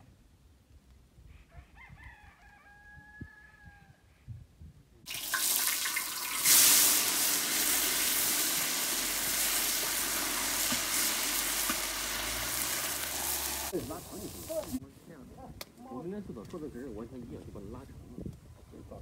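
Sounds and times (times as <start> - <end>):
food sizzling in hot oil: 5.1 - 14.8.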